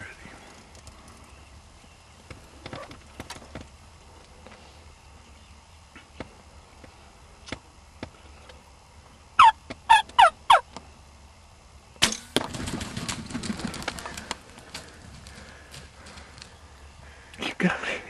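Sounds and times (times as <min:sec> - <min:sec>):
turkey yelps: 0:09.4 - 0:10.7
wings flapping heavily: 0:12.4 - 0:16.6.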